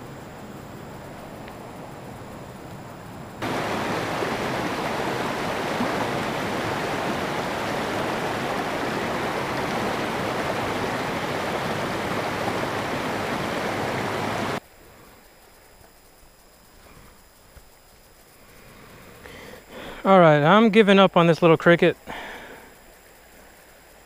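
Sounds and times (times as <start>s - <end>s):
water rushing over rocks: 3.4s - 14.6s.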